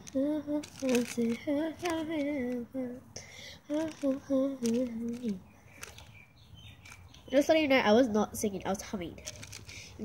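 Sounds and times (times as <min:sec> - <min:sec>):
short crackles: 0:00.0 - 0:02.6, 0:03.7 - 0:06.2, 0:06.8 - 0:07.3, 0:09.2 - 0:09.9
girl humming: 0:00.0 - 0:05.4.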